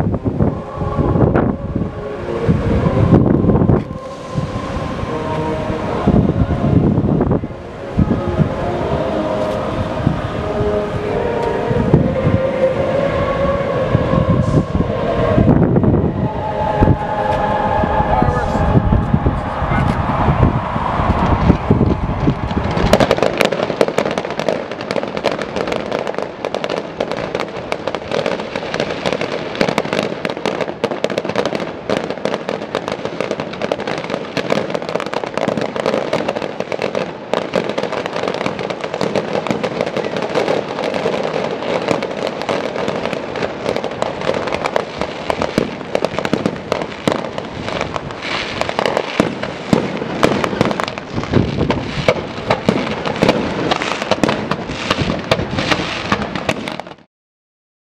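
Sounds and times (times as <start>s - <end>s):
fireworks crackles and pops: 0.0s - 0.5s, 2.7s - 5.4s, 21.1s - 57.1s
heavy firework bangs: 18.8s - 57.0s.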